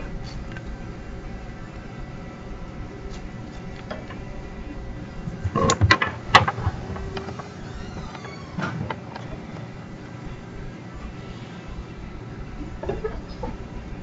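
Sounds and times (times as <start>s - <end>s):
room hum: 0.0s - 14.0s
knocks and clicks: 5.4s - 9.7s.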